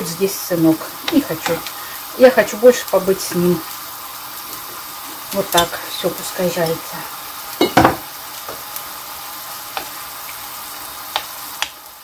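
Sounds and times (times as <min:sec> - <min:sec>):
food sizzling in a frying pan: 0:00.0 - 0:12.0
metal spoon clinking: 0:07.6 - 0:07.8.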